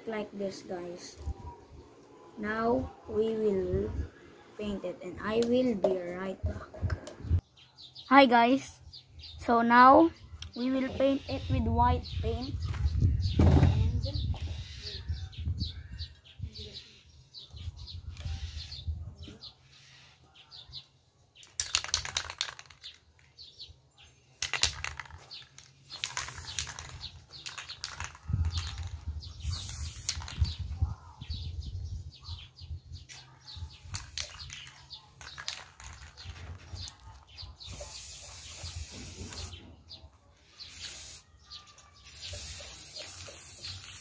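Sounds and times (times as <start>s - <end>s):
spray can rattling: 21.4s - 23.5s, 24.4s - 30.6s, 33.7s - 39.6s, 40.6s - 41.2s, 42.0s - 44.0s
spray can hissing: 25.8s - 30.6s, 37.6s - 39.6s, 40.6s - 41.3s, 42.0s - 44.0s.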